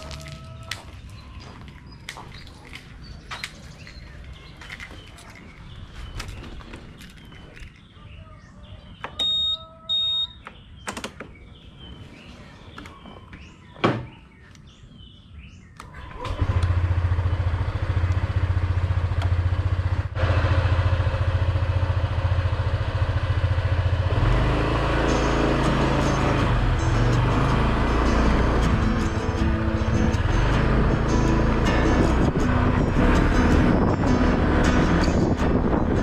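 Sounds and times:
birds chirping: 0:00.0 - 0:16.4
short electronic beeps: 0:09.2 - 0:10.4
scooter engine running: 0:16.0 - 0:36.0.

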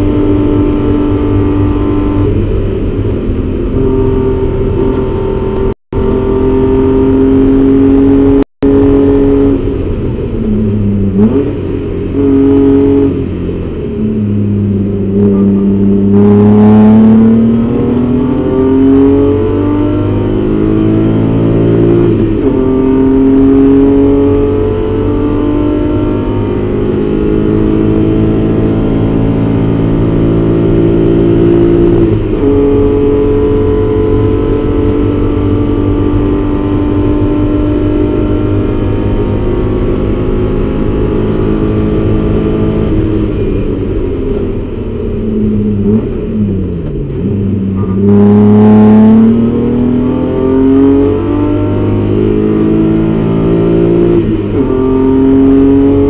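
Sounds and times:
race car engine at high revs: 0:00.0 - 0:56.0.

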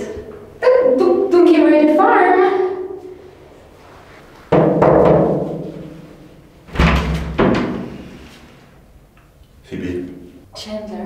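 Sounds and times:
deep drum hits: 0:04.5 - 0:08.0.

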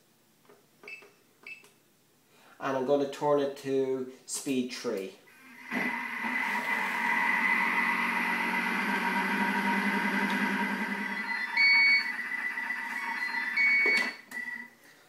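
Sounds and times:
food processor motor whirring: 0:05.3 - 0:13.9.

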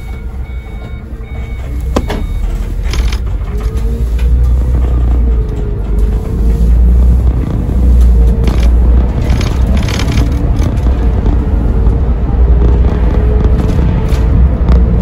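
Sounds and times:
bus engine rumbling: 0:00.0 - 0:15.0
clicks and rattles: 0:07.9 - 0:11.3.

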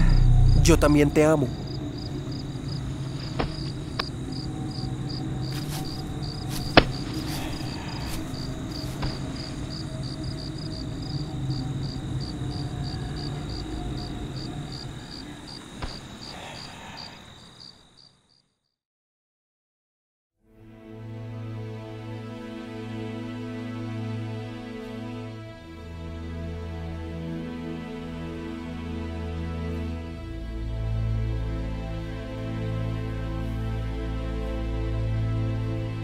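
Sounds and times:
low background rumble: 0:00.0 - 0:16.2
crickets chirping: 0:00.0 - 0:18.6.

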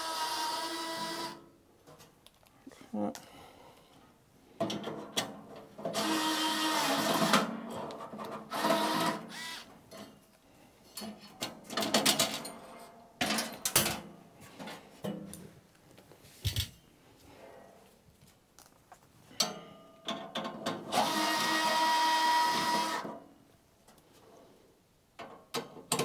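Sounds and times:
electric screwdriver running: 0:08.6 - 0:09.7, 0:21.0 - 0:23.0.

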